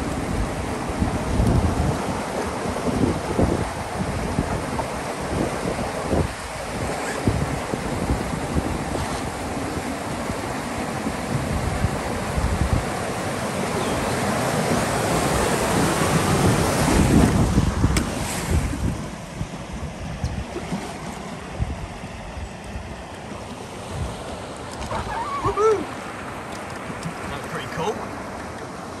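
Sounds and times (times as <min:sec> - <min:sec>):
wind noise on microphone: 0:00.0 - 0:23.0
rushing water: 0:00.0 - 0:29.0.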